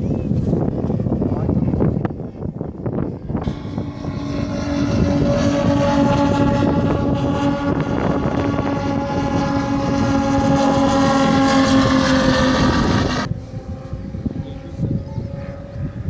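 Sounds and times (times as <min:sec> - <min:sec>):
model plane propeller drone: 0:00.0 - 0:16.0.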